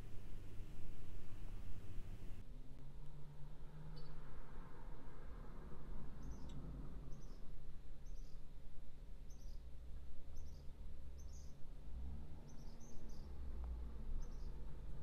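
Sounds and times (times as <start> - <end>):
low steady hum: 0.0 - 2.8.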